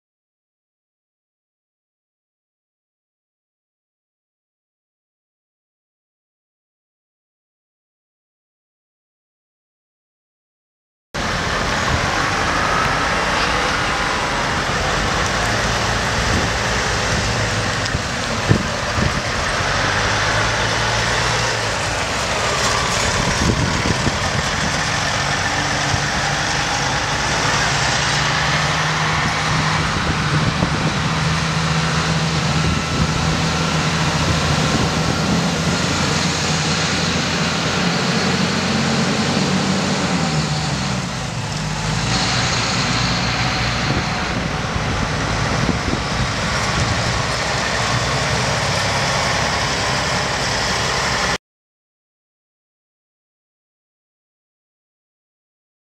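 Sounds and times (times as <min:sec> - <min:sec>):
diesel trucks driving past: 0:11.2 - 0:51.4.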